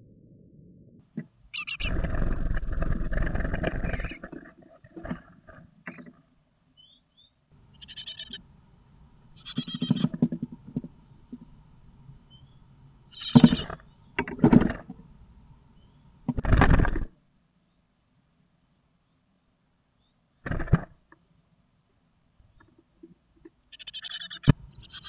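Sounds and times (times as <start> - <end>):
nestlings harsh calling: 1.5 - 4.5, 6.8 - 8.5, 9.3 - 10.3, 12.2 - 14.2, 23.7 - 25.0.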